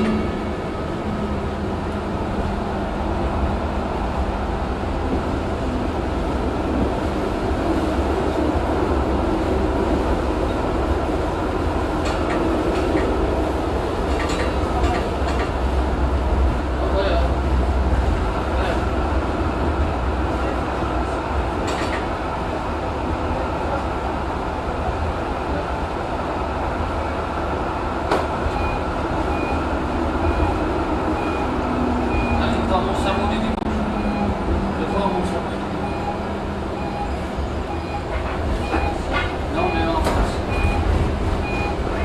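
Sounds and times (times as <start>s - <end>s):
tram rumbling on track: 0.0s - 42.0s
faint high beep: 36.8s - 39.0s.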